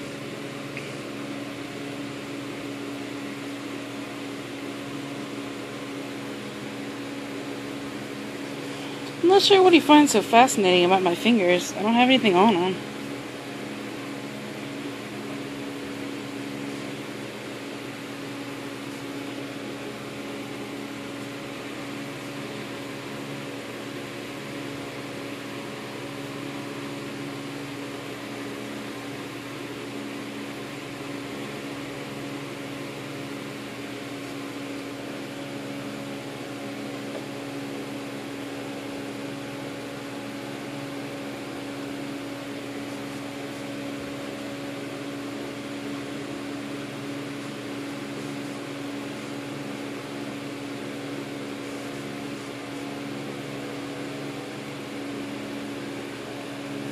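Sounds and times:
machine hum with steady tones: 0:00.0 - 0:56.9.

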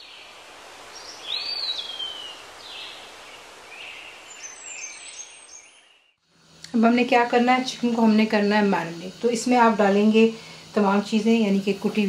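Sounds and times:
birds chirping: 0:00.0 - 0:06.2
background hiss: 0:00.0 - 0:12.0.

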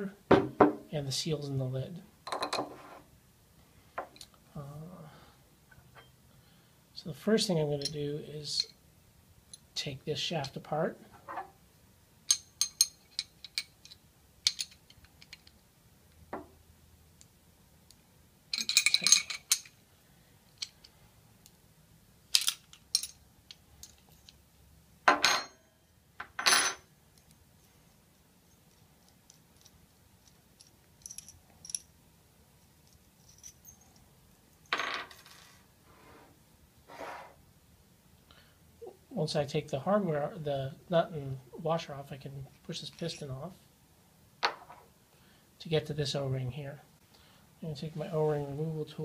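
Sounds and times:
wrenches clinking on metal: 0:18.5 - 0:19.7
wrenches set down on wooden table: 0:34.7 - 0:35.4, 0:44.4 - 0:44.8.

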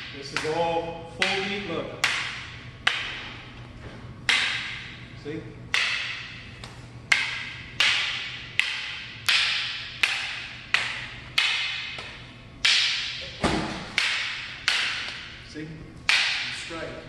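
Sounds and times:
wooden sticks clacking: 0:01.2 - 0:03.2, 0:04.3 - 0:05.0, 0:05.7 - 0:15.4, 0:16.0 - 0:16.8.

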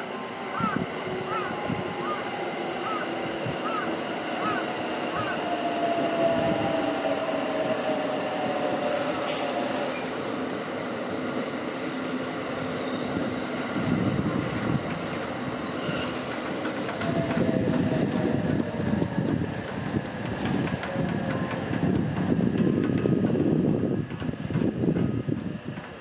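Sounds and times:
wheels rumbling on rails: 0:01.1 - 0:26.0
train motor whine: 0:12.5 - 0:23.0.

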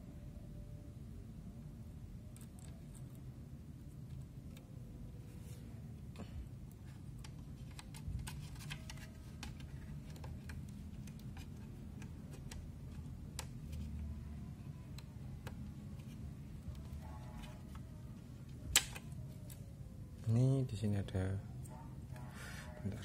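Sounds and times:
faint low hum: 0:00.0 - 0:23.0
cable connector clicks and taps: 0:18.7 - 0:19.1.

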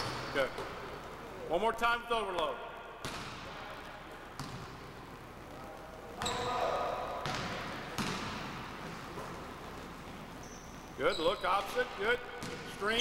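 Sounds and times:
basketball bouncing on gym floor: 0:02.4 - 0:05.0, 0:06.2 - 0:10.9, 0:12.3 - 0:13.0.

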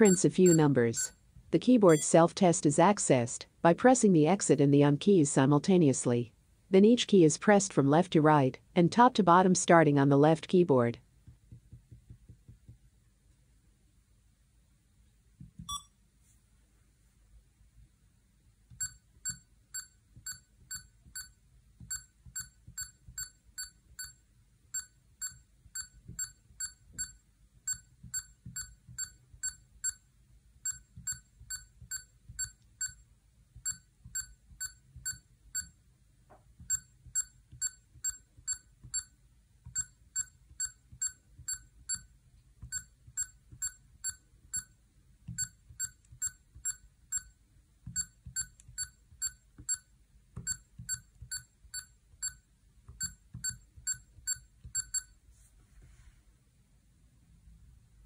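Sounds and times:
short high calculator beeps: 0:01.9 - 0:02.2, 0:15.7 - 0:16.0.

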